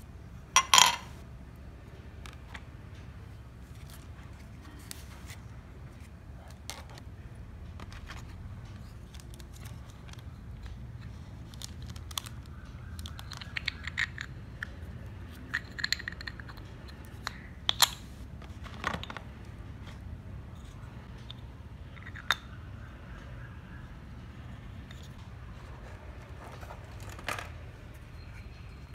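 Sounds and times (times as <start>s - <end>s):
toy utensils clicking and tapping: 12.9s - 18.0s.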